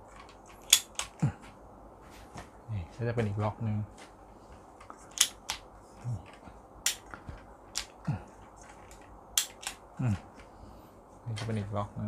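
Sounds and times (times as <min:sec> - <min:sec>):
tripod leg lock clicks: 0:00.2 - 0:01.1, 0:05.1 - 0:05.6, 0:06.9 - 0:07.1, 0:08.9 - 0:09.8.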